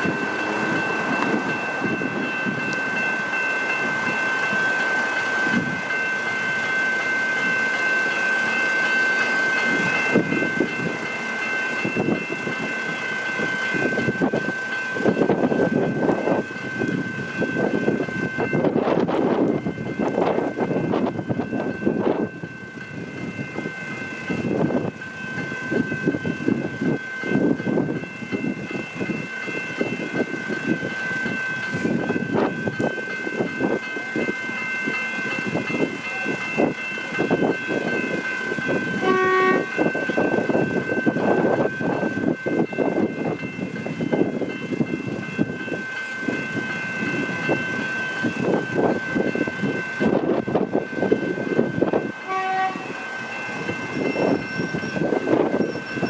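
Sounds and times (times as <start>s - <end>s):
crossing bells ringing: 0.0s - 56.0s
train wheels clattering on rails: 0.0s - 56.0s
train horn toot: 39.0s - 40.0s, 52.2s - 53.0s.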